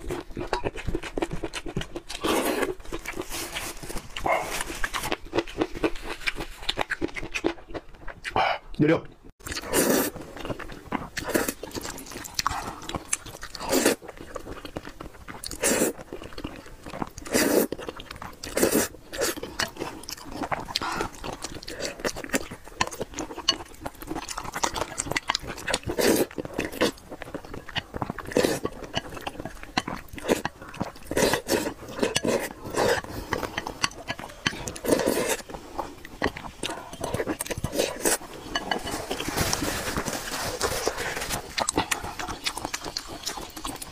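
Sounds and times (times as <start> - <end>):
wet chewing: 0.0 - 8.8, 9.4 - 43.9
person slurping noodles: 9.5 - 10.2, 17.2 - 17.8, 25.8 - 27.0, 28.2 - 29.2, 30.2 - 39.6.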